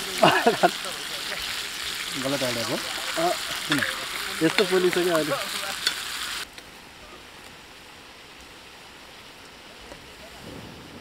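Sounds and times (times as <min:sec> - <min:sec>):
meat sizzling in a pan: 0:00.0 - 0:06.5
quiet steady hiss: 0:00.0 - 0:11.0
spatula scraping a pan: 0:02.9 - 0:06.1.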